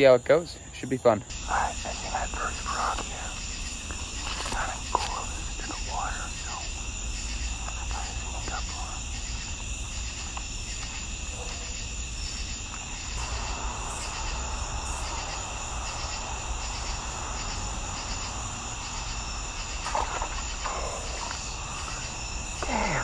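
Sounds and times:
crickets and insects trilling: 0.0s - 23.0s.

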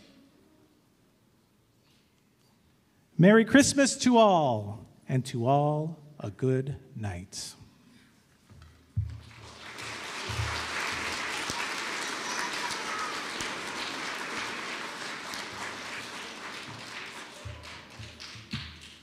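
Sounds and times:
audience applauding: 9.1s - 19.0s.

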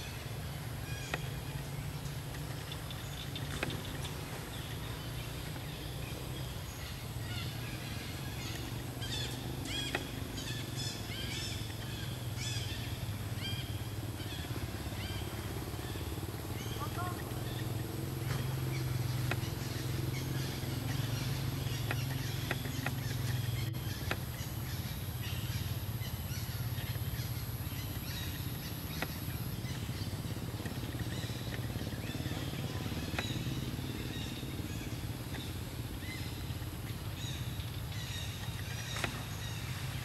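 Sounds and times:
low motor hum: 0.0s - 40.0s
faint clicks: 1.0s - 5.8s, 18.2s - 24.8s.

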